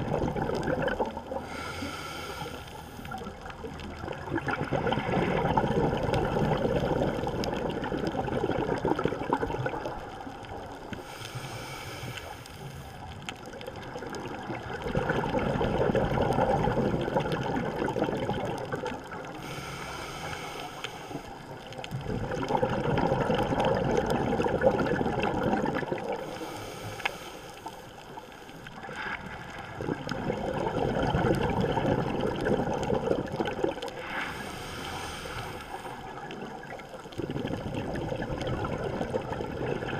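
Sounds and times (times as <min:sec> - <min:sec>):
exhaled bubbles rushing: 0:00.0 - 0:01.7, 0:03.1 - 0:10.7, 0:13.4 - 0:19.4, 0:21.4 - 0:26.4, 0:28.8 - 0:39.9
regulator inhalation hiss: 0:01.5 - 0:03.0, 0:11.0 - 0:13.0, 0:19.4 - 0:21.4, 0:26.2 - 0:27.8, 0:34.0 - 0:36.1.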